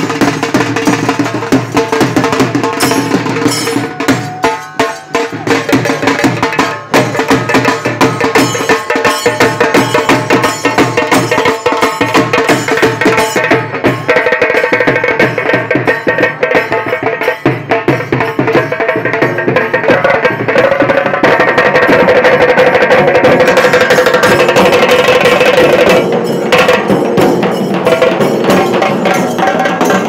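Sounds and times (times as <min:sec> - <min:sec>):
fast dense drumming: 0:00.0 - 0:30.0.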